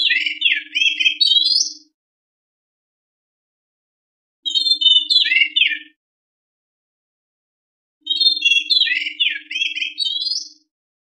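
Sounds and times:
bird song with clear whistles: 0.0 - 2.0, 4.4 - 6.0, 8.0 - 10.7.

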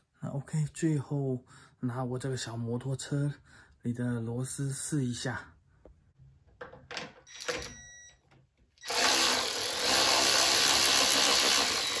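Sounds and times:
cordless tool spinning a bolt: 8.8 - 12.0.

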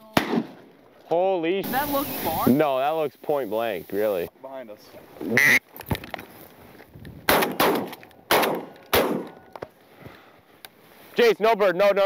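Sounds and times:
shotgun shots: 0.2 - 0.7, 7.3 - 9.4.

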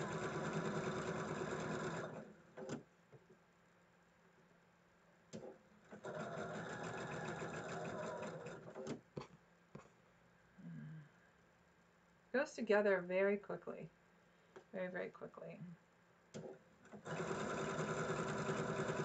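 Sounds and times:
sewing machine stitching: 0.0 - 2.8, 5.4 - 9.0, 16.4 - 19.0.

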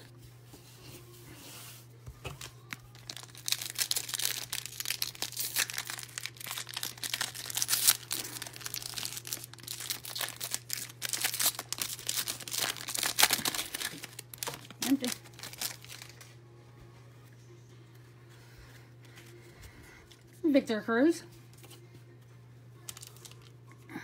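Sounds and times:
card wrappers tearing and crinkling: 2.3 - 16.4, 22.8 - 23.6.

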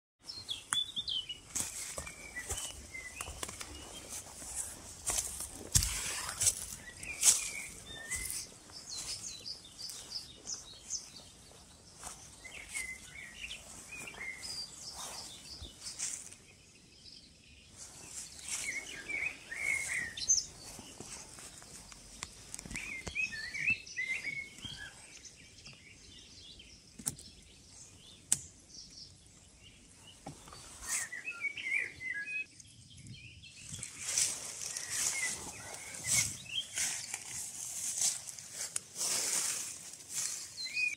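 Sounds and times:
songbirds chirping and singing: 0.2 - 40.9
footsteps through grass: 0.3 - 16.4, 17.7 - 25.2, 33.6 - 40.9
rustling: 33.8 - 40.6.

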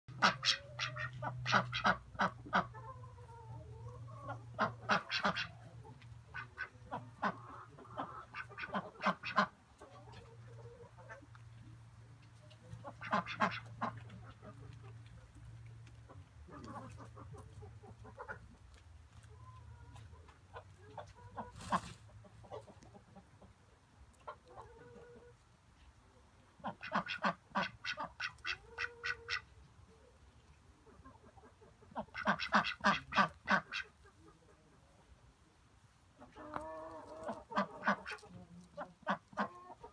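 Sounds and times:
ducks quacking: 0.1 - 11.4, 12.4 - 15.4, 16.0 - 18.6, 26.6 - 29.6, 30.8 - 35.0, 36.2 - 39.9.

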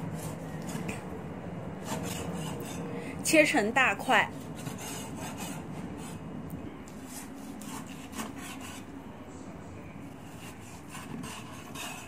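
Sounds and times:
cleaver slicing meat: 1.8 - 2.9.

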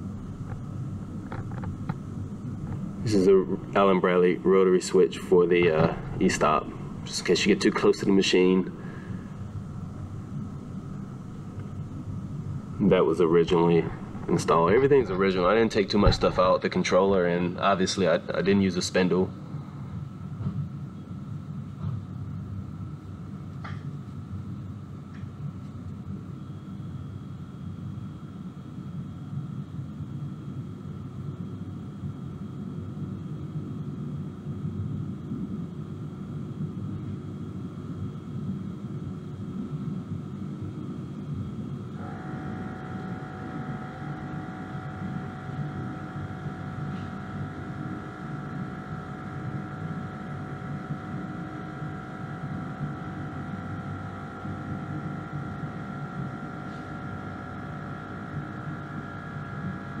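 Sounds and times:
cnc router humming: 0.0 - 19.4, 41.8 - 60.0.

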